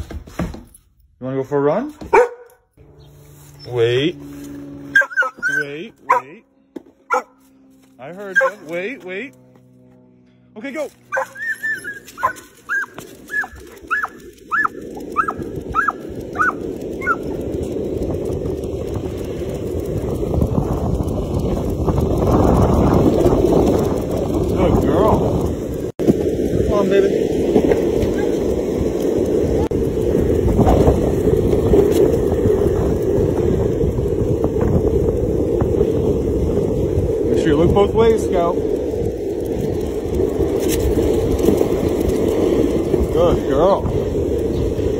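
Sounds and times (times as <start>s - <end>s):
dog whining: 4.9s - 6.2s, 11.1s - 17.2s, 28.0s - 28.4s
wind on microphone: 11.6s - 44.9s.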